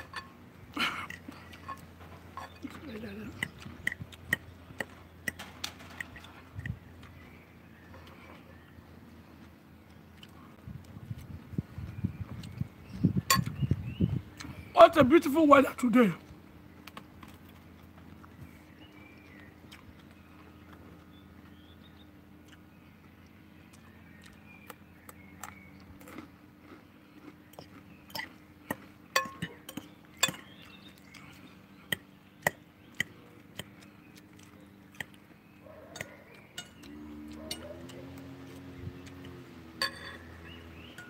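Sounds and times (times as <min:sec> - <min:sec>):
forks clinking on glass bowl: 0:13.3 - 0:13.5, 0:36.0 - 0:36.9, 0:39.8 - 0:40.3.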